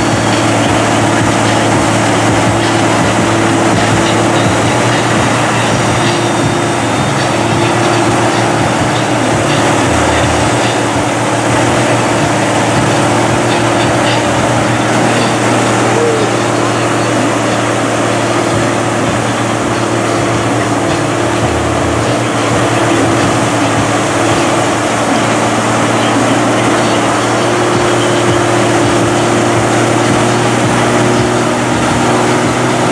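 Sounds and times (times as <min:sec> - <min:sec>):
diesel engine running loud: 0:00.0 - 0:32.9.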